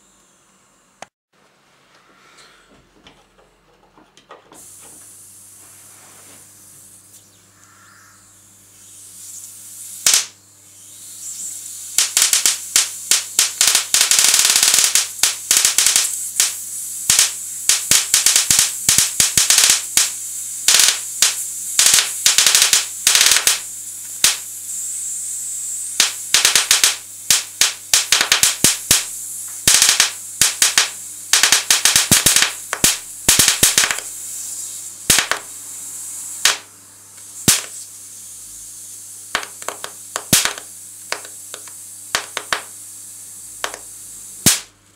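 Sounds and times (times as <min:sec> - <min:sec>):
steady high hiss: 0:04.4 - 0:44.9
electric sparks snapping: 0:09.0 - 0:35.6, 0:36.3 - 0:38.0, 0:38.9 - 0:42.8, 0:43.5 - 0:44.8.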